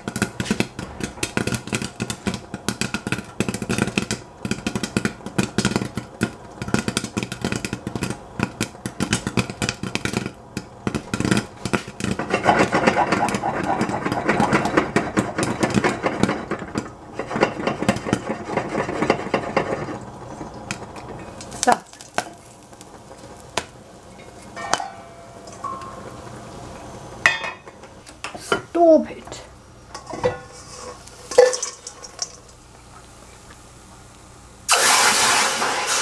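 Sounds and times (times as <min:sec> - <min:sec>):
pan rattling on burner: 0:00.0 - 0:23.4, 0:29.9 - 0:32.6
popcorn popping in covered pan: 0:00.0 - 0:29.2, 0:29.8 - 0:36.0.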